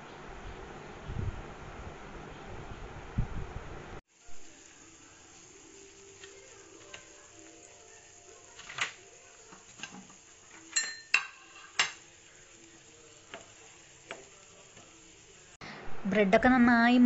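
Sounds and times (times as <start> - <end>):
bread sizzling in oil: 4.1 - 15.6.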